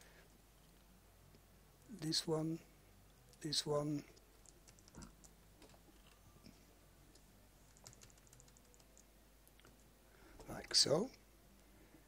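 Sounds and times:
mouse and keyboard clicks: 4.4s - 6.2s, 7.1s - 9.7s.

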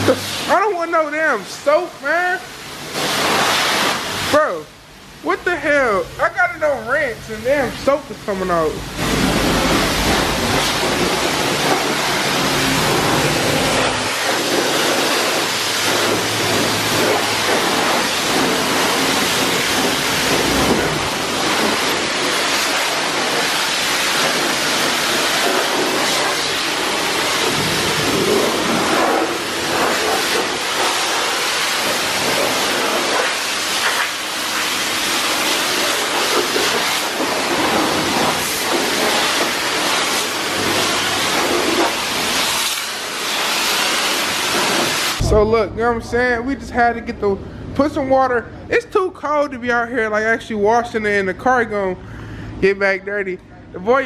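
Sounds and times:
pressure washer spraying water: 0.0s - 45.6s.

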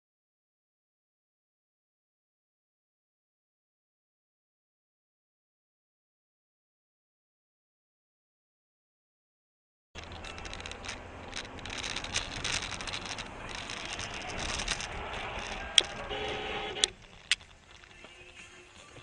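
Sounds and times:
crackling rattles: 10.0s - 19.0s
road and engine noise: 10.0s - 19.0s
sharp clicks: 10.0s - 19.0s.

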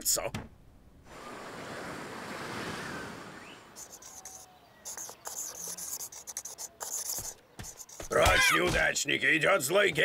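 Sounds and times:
pen scribbling on paper: 3.8s - 8.7s.

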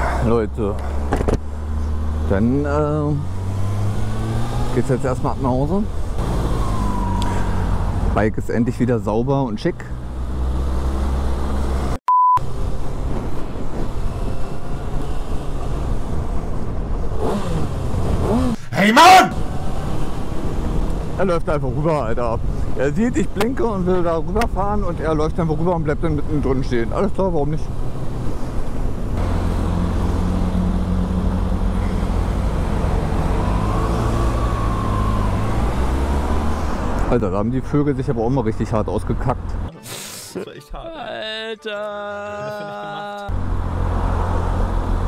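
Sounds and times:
road and wind noise: 0.0s - 39.7s, 42.8s - 45.0s
short beep tone: 12.1s - 12.4s
motorcycle engine at low revs: 12.6s - 18.7s.

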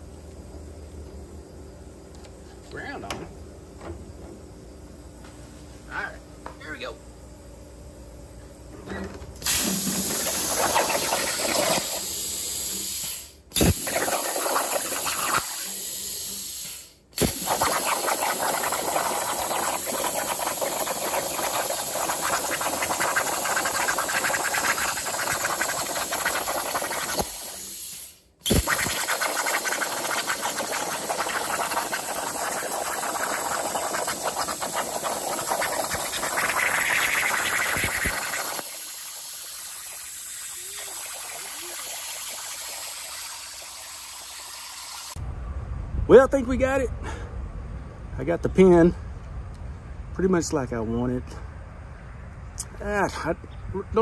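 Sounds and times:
plasma cutter arc hissing: 9.4s - 45.2s
sharp pop of arc starting: 13.0s - 15.6s, 16.7s - 23.3s, 23.9s - 31.8s.

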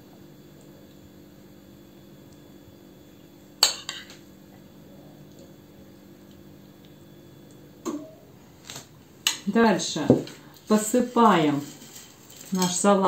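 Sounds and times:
faint steady hum: 0.0s - 13.0s
cutlery clinking on a plate: 3.6s - 4.2s.

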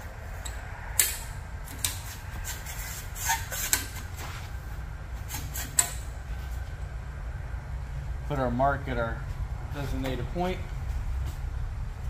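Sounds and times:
steady low hum: 0.0s - 12.0s
metal tube scraping: 1.8s - 4.5s.

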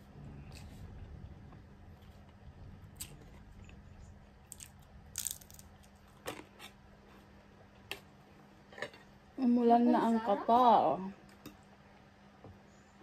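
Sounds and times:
faint low hum: 0.0s - 13.0s
chewing crisp food crunches: 4.5s - 6.8s.

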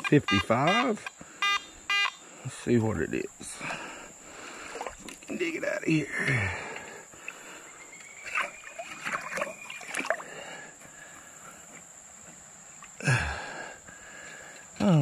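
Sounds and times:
water sloshing and splashing: 4.6s - 5.4s, 8.1s - 10.5s.

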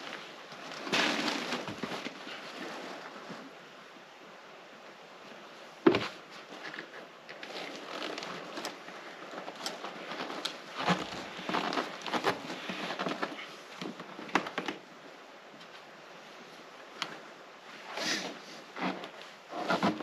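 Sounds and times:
plastic pipe scraping in joint: 18.0s - 20.0s.

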